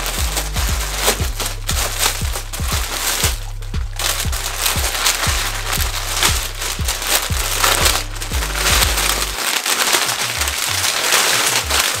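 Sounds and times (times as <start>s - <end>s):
music with bass beat: 0.0s - 9.4s
plastic bag crinkling: 0.0s - 12.0s.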